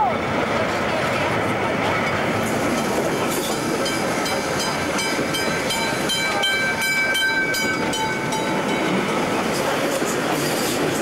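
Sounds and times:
railway carriages rolling: 0.0 - 11.0
level-crossing bell ringing: 3.9 - 9.2.

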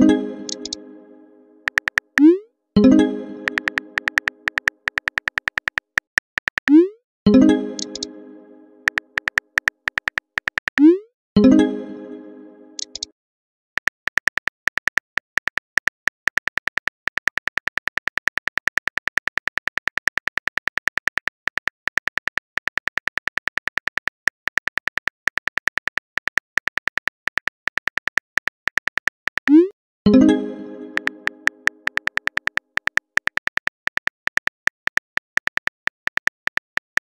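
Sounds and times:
phone keyboard typing clicks: 0.0 - 0.8, 1.7 - 2.4, 3.4 - 6.9, 7.7 - 8.1, 8.8 - 11.0, 12.8 - 13.1, 13.8 - 29.7, 31.0 - 37.0.

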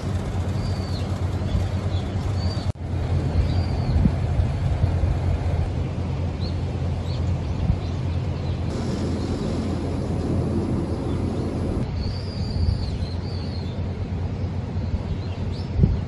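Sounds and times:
sea waves rumbling: 8.7 - 12.0.

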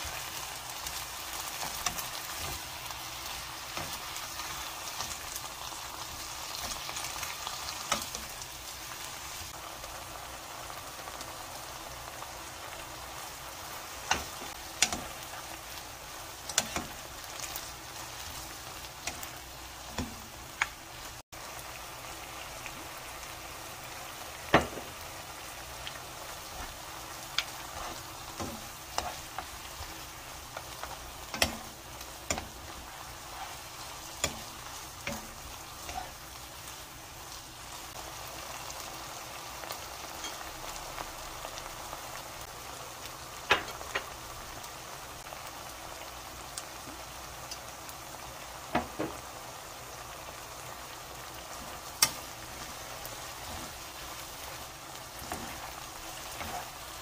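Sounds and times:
meat sizzling in a wok: 0.0 - 57.0
utensils knocking against pan: 31.3 - 31.7.

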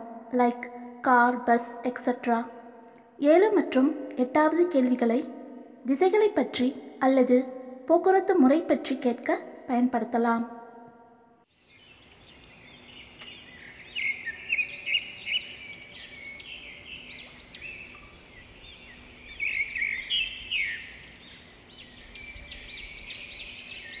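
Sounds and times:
small birds chirping: 11.5 - 24.0.

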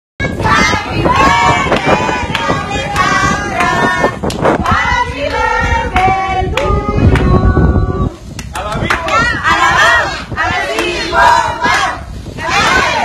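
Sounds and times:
people singing and shouting: 0.2 - 8.2, 9.0 - 13.0
sharp claps: 8.3 - 9.2.

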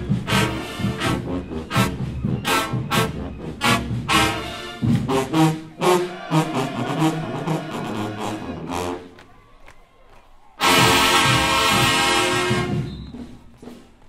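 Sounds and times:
marching band playing: 0.0 - 9.3, 10.6 - 14.0
held brass chord: 0.1 - 9.1, 10.6 - 12.8.

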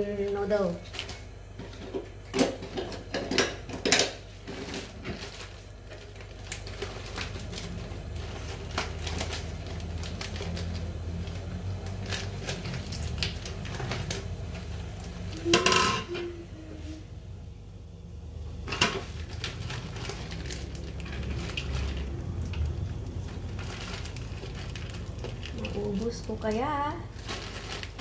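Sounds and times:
steady low hum: 0.0 - 28.0
dishes and utensils clattering: 15.4 - 16.3.

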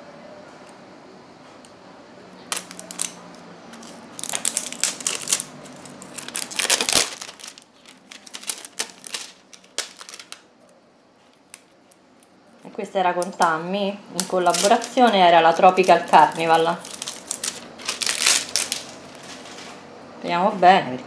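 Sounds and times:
packing paper crinkling: 2.5 - 10.5, 14.1 - 19.8.

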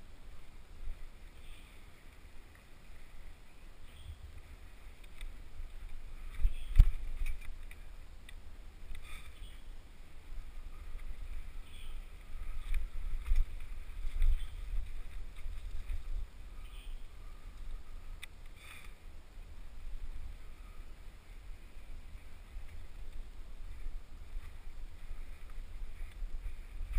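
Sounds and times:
wind buffeting microphone: 10.1 - 18.3.

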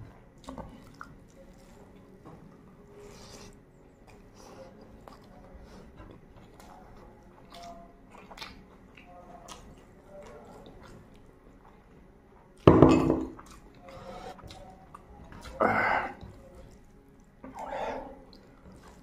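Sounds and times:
wet chewing mouth noises: 0.4 - 1.8, 3.2 - 5.4, 7.4 - 11.8
glass bowl clunking on steel plate: 12.7 - 13.4.

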